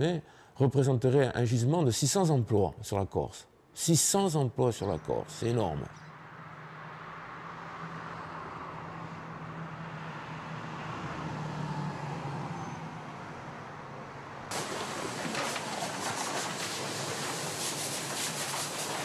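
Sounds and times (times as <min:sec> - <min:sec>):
road traffic noise: 0:04.4 - 0:19.0.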